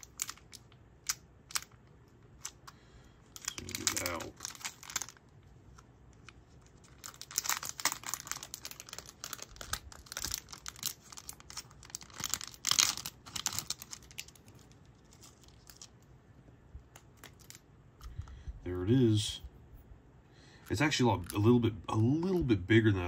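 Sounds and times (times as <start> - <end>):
packaging tearing and crinkling: 0.0 - 1.8, 3.3 - 5.3, 6.2 - 16.0, 16.9 - 17.6.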